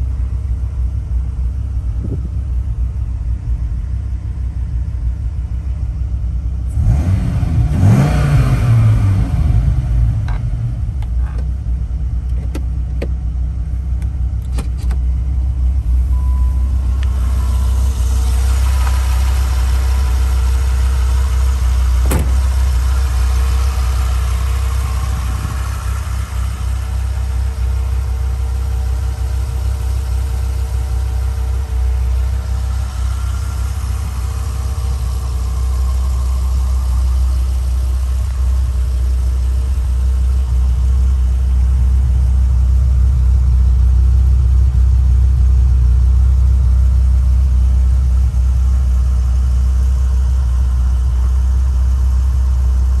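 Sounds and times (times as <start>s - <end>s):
car engine idling: 0.0s - 53.0s.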